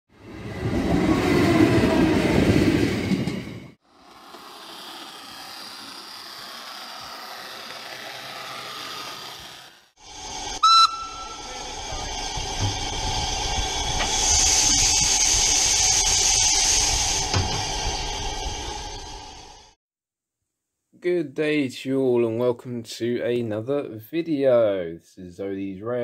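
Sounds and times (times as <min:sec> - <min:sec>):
diesel locomotive passing: 0:00.1 - 0:19.8
train running steadily: 0:00.2 - 0:19.5
steam hissing: 0:03.8 - 0:19.8
steam locomotive whistle: 0:10.6 - 0:12.4.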